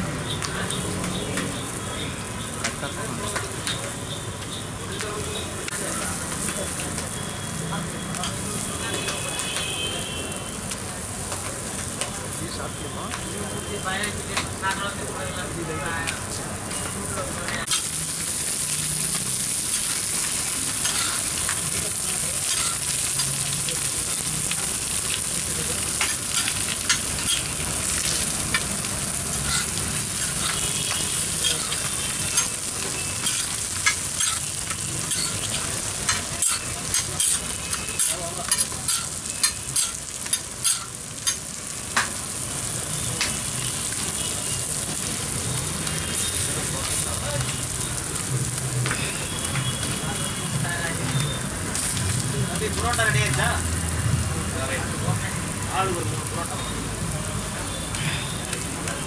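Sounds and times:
bread sizzling on griddle: 0.0s - 59.0s
metal spatula scraping griddle: 22.5s - 22.9s, 29.3s - 30.7s, 35.0s - 40.0s.

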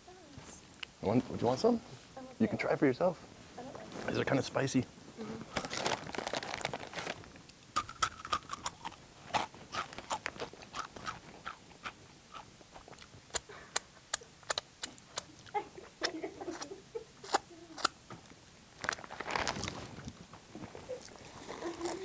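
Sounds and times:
crunching and chewing chips: 5.4s - 15.6s, 16.6s - 18.0s, 18.8s - 20.1s, 20.8s - 22.0s.

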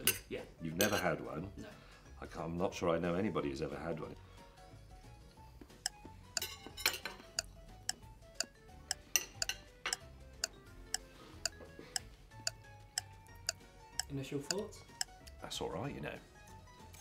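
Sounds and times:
background music with ticking beat: 4.8s - 17.0s.

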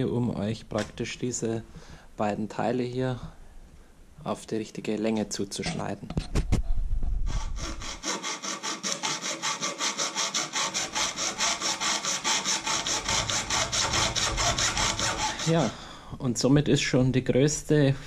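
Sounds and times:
hacksaw cutting metal: 7.3s - 15.8s.

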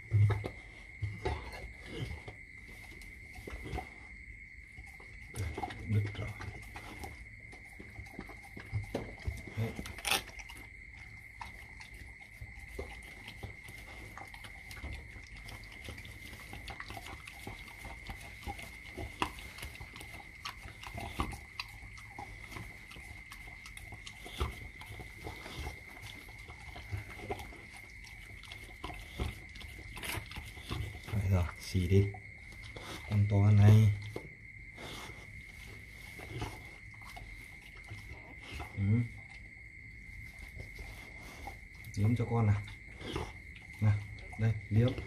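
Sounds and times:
dog licking puppy: 4.7s - 45.0s.

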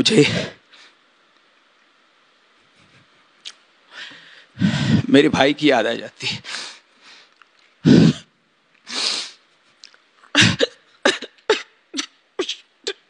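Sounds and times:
man sobbing: 0.0s - 0.6s.

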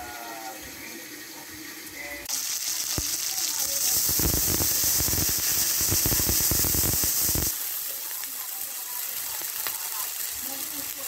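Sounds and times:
sizzling: 0.0s - 11.0s
water pouring into hot wok: 0.3s - 11.0s.

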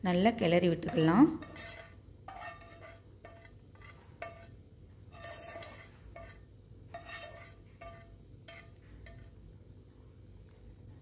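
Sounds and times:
metal spoon scraping steel dish: 0.8s - 9.4s.

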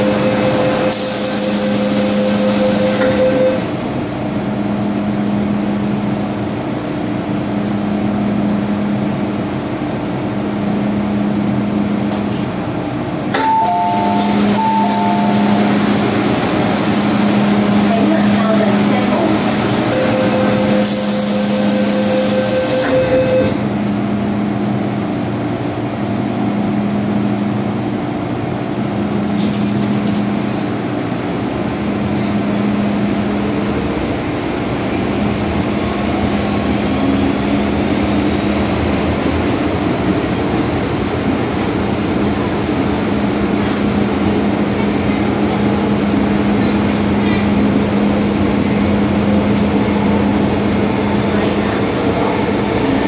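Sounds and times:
low train hum: 0.0s - 53.0s
train wheels rumbling: 28.4s - 53.0s.

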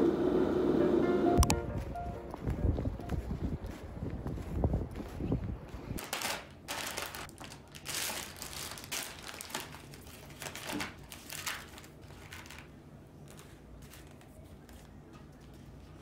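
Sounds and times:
plastic packaging crinkling: 6.0s - 15.8s.

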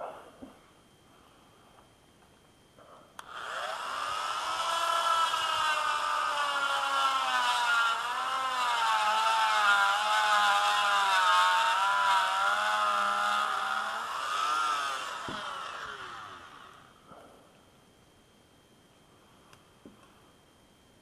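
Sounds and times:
rotary tool grinding plastic: 3.2s - 16.8s.

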